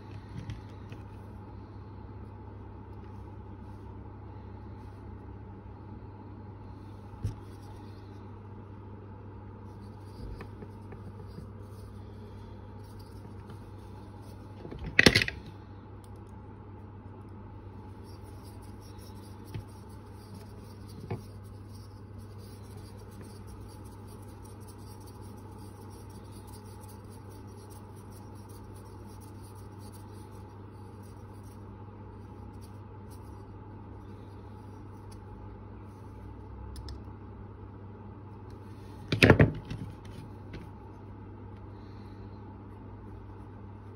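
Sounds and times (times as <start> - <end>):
steady low hum: 0.0 - 43.9
rubbing and scratching on wood: 17.9 - 33.5.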